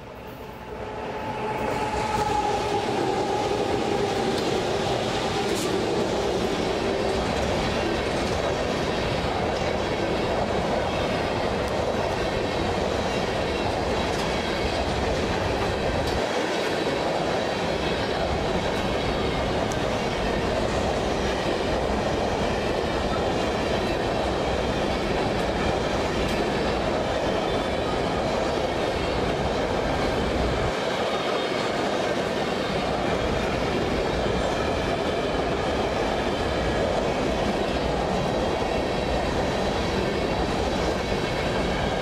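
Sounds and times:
freight train wheels rumbling: 0.0 - 42.0.

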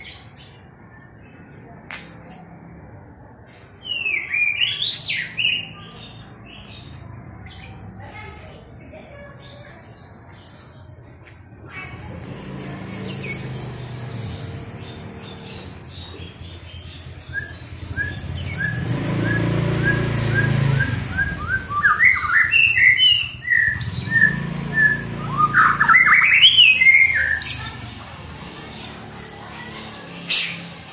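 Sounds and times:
bird singing: 12.4 - 30.8.

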